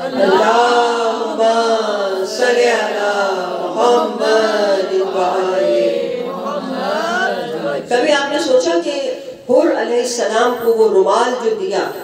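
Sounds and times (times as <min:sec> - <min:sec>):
devotional chanting: 0:00.0 - 0:08.6.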